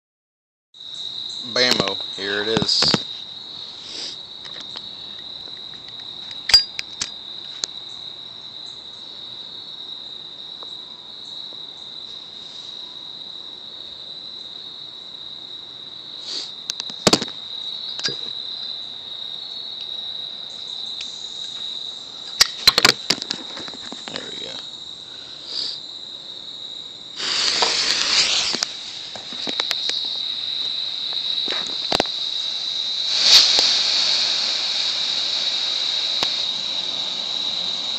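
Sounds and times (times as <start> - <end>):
crickets chirring: 0.8 - 37.9
smoke grenade hissing: 3.7 - 4.3, 16.2 - 17.2, 25.3 - 25.8, 27.2 - 37.9.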